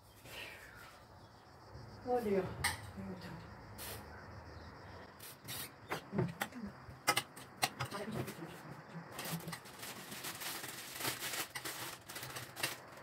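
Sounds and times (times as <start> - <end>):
dishes clicking and knocking: 5.9 - 8.4
rustling and scraping: 7.2 - 13.0.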